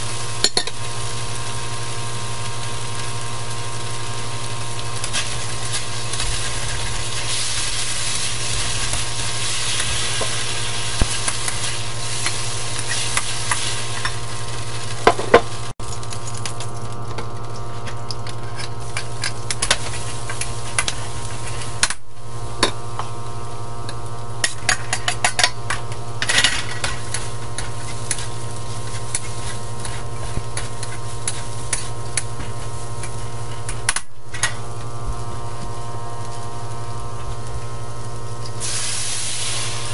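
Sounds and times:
food sizzling in hot oil: 0:00.0 - 0:39.9
steady low hum: 0:00.0 - 0:39.9
metal spatula scraping a wok: 0:26.2 - 0:32.7.

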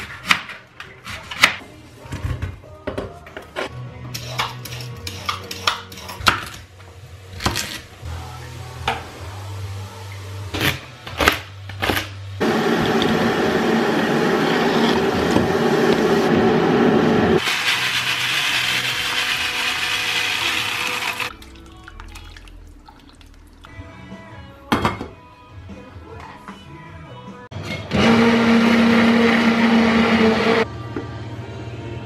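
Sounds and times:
kitchenware knocks: 0:24.7 - 0:25.2.

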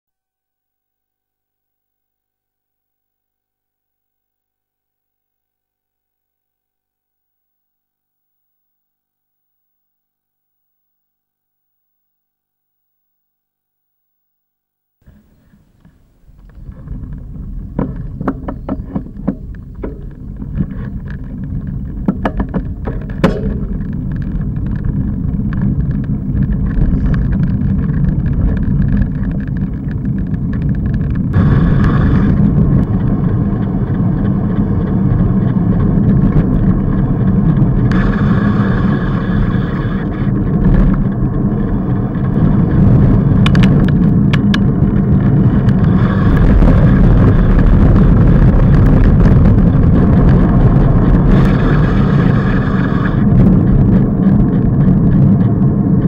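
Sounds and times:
bicycle road rumble: 0:15.0 - 0:56.0
sharp clicks and knocks: 0:15.8 - 0:32.0, 0:42.2 - 0:46.7
wind rushing over microphone: 0:16.1 - 0:56.0.

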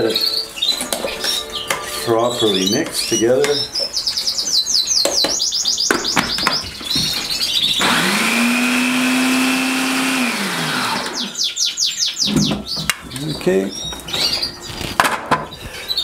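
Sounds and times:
canaries chirping: 0:00.0 - 0:16.0
food processor motor running: 0:07.8 - 0:11.3.

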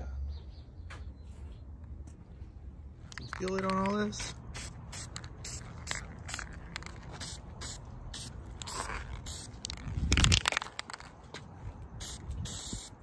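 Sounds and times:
spray paint can hissing: 0:03.1 - 0:11.1, 0:12.0 - 0:13.0.

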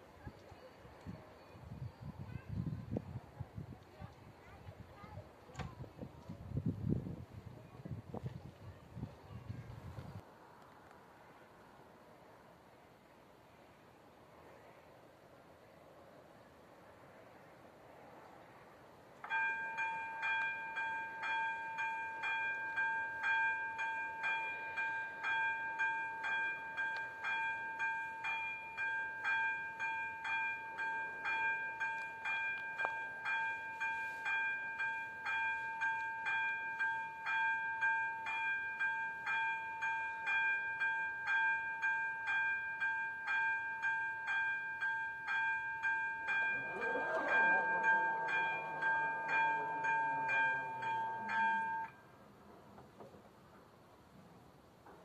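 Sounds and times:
level crossing warning bell: 0:19.2 - 0:52.2.

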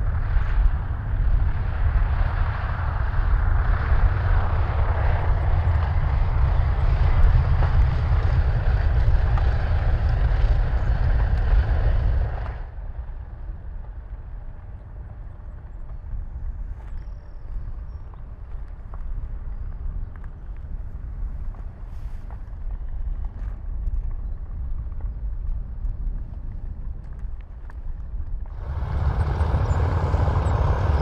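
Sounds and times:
propeller engines droning: 0:00.0 - 0:15.7, 0:28.4 - 0:31.0.

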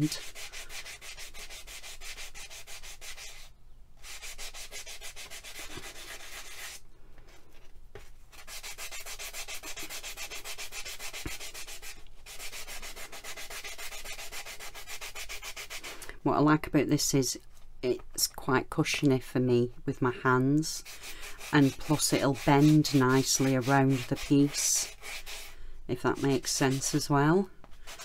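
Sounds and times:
sanding pad rubbing on clay: 0:00.0 - 0:06.8, 0:08.3 - 0:15.9, 0:20.7 - 0:28.0.

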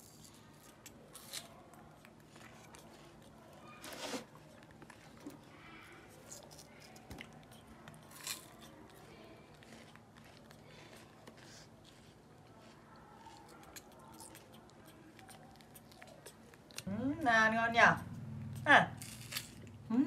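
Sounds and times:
forks clicking while eating: 0:12.6 - 0:16.8.

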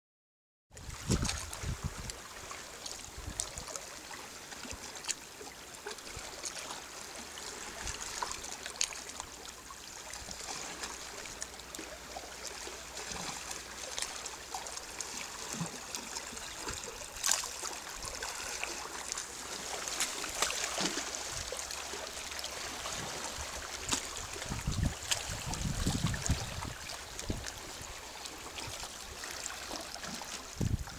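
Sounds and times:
wind buffeting microphone: 0:00.8 - 0:02.2, 0:23.4 - 0:28.0, 0:30.4 - 0:30.9
water lapping among rocks: 0:00.8 - 0:30.9.

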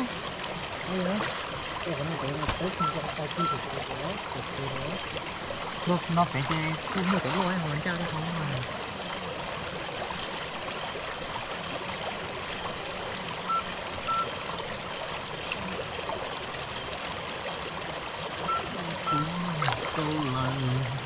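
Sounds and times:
stream water trickling: 0:00.0 - 0:21.0
short high beeps: 0:13.5 - 0:14.2.

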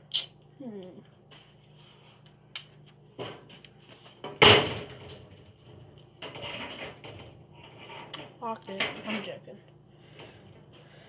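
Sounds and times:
knocks and clatter of objects: 0:04.2 - 0:09.4.

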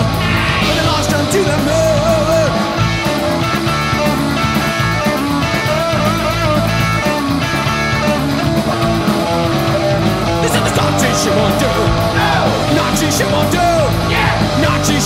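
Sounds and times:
plucked electric guitar: 0:00.0 - 0:15.0
punk rock band playing: 0:00.0 - 0:15.0.

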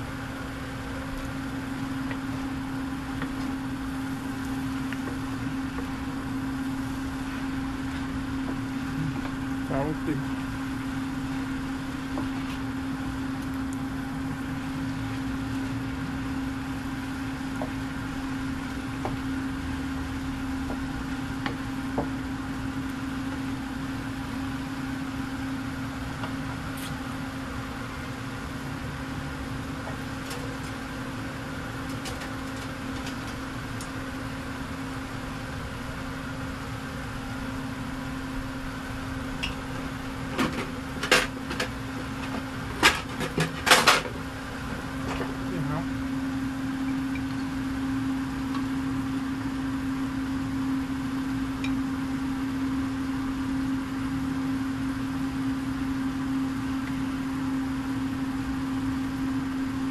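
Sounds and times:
vegetables cooking in a wok: 0:00.0 - 0:09.7, 0:10.3 - 0:43.6
exhaust fan motor hum: 0:00.0 - 0:59.9.

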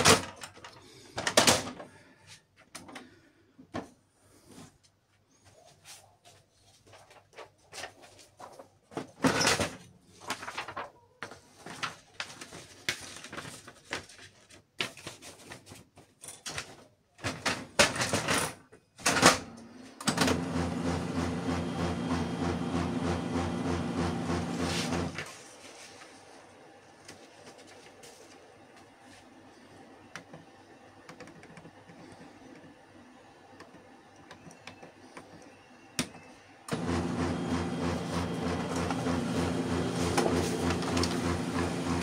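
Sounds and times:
printer mechanism clicks and clunks: 0:16.3 - 0:25.2, 0:33.6 - 0:42.0
printer motor pulsing hum: 0:20.1 - 0:25.2, 0:29.8 - 0:42.0.

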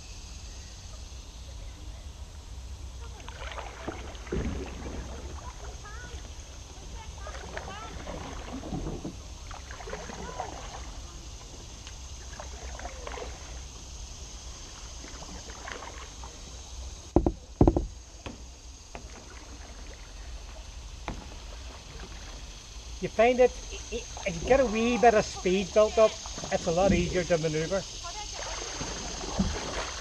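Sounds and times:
paddle strokes in water: 0:03.0 - 0:30.0
dull knocks: 0:17.1 - 0:19.2.

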